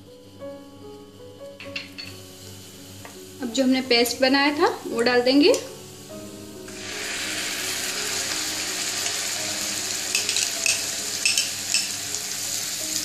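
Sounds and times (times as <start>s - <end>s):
paste sizzling in hot oil: 3.5s - 13.0s.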